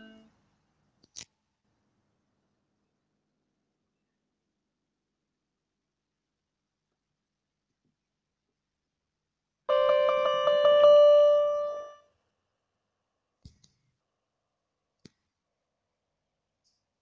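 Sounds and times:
bell-like keyboard tone: 9.7 - 12.0.

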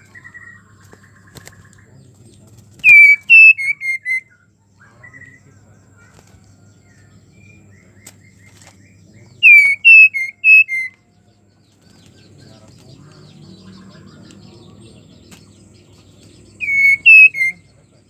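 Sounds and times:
bird whistling short notes: 16.6 - 17.6.

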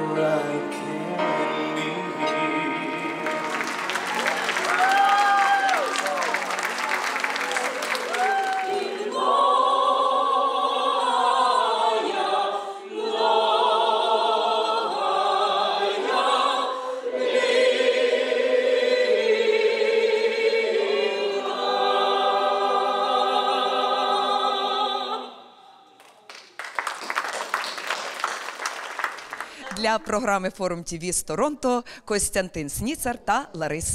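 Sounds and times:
many voices singing: 0.0 - 4.5, 7.5 - 25.8.

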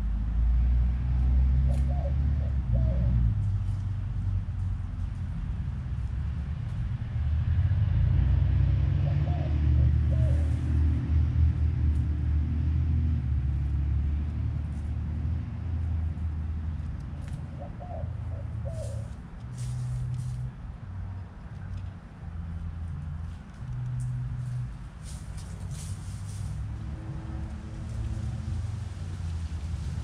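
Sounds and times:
low vehicle engine rumble: 0.0 - 30.0.

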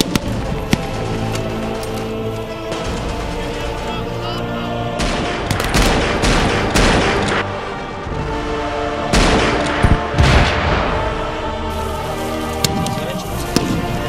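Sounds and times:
background music: 0.0 - 14.0
heavy blast: 4.8 - 7.7, 9.0 - 11.8
rapid rifle shots: 5.0 - 7.5, 9.1 - 10.7.

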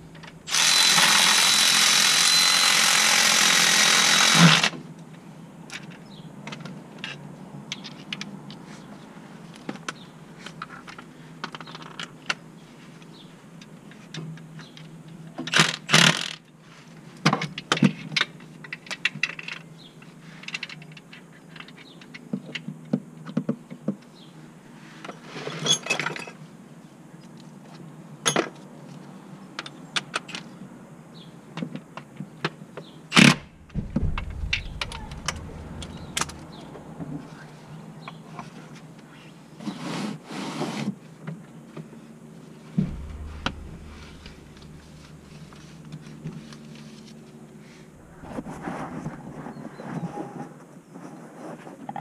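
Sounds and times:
sharp loud knock: 33.2 - 37.3, 42.8 - 45.8.

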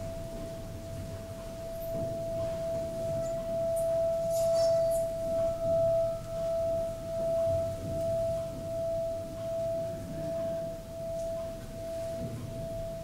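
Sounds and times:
faint higher bowl tone: 0.0 - 13.0
singing bowl ringing: 0.0 - 13.0.

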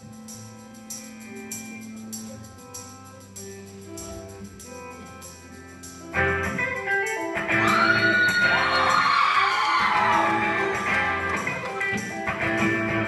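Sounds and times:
picked guitar notes: 0.0 - 13.0
punk rock band playing: 6.2 - 13.0.

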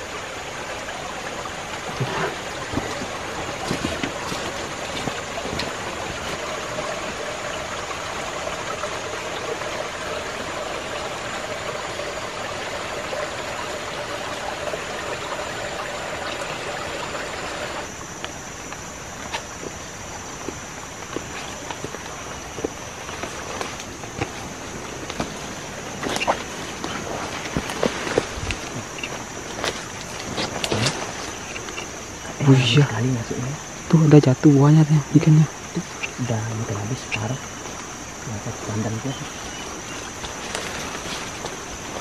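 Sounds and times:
rushing water hiss: 0.0 - 42.0.

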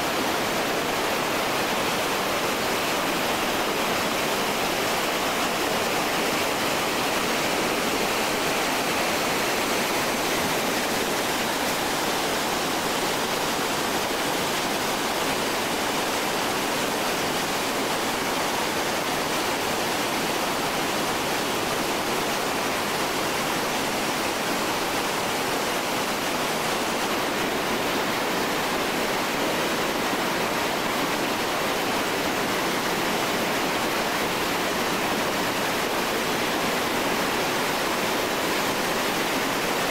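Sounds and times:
water rushing over boulders: 0.0 - 39.9.

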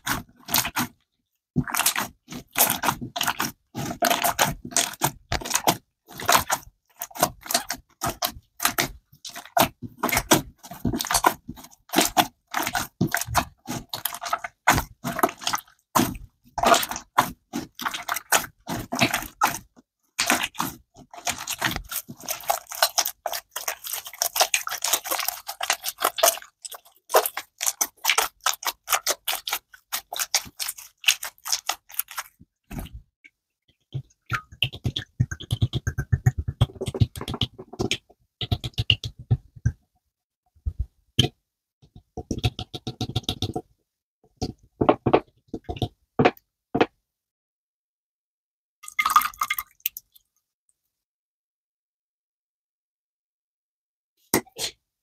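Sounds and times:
slime squishing and popping: 1.6 - 32.9, 34.3 - 39.2.

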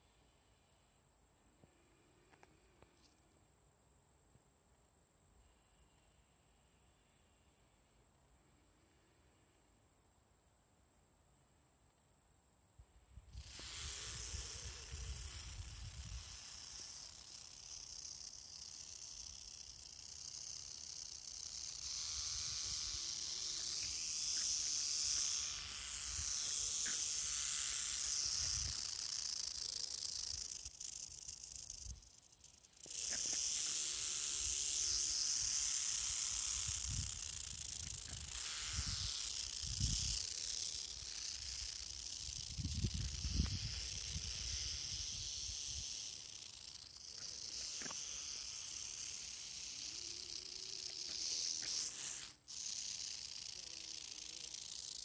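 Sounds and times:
rattlesnake rattling: 13.1 - 55.0.

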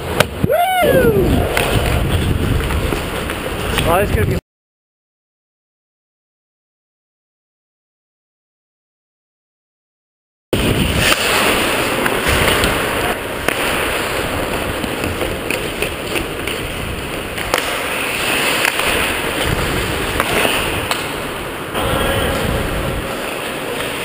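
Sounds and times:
skate blades scraping on ice: 1.3 - 4.0, 10.6 - 24.0
sticks and puck clacking: 1.5 - 4.0, 11.0 - 24.0.

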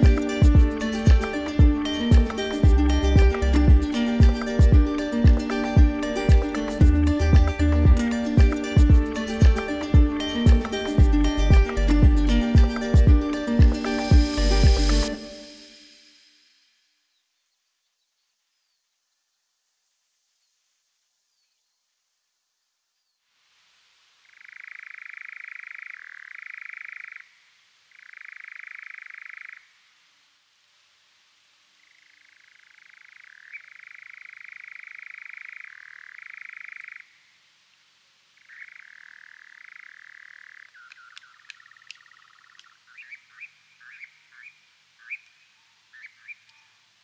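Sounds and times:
bird trilling calls: 38.4 - 46.7.

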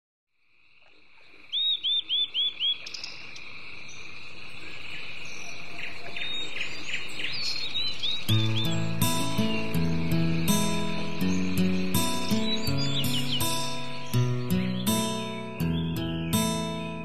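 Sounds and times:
bird calling: 1.2 - 17.0
high insect drone: 2.5 - 15.6
music: 8.3 - 17.0.

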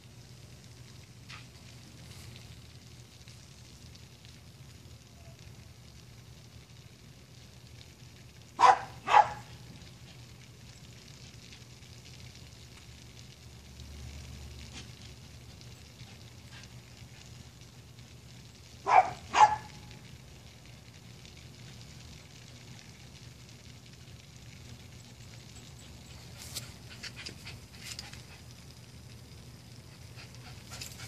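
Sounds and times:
low background hum: 0.0 - 31.0
dog barking: 8.6 - 9.5, 18.8 - 19.8.

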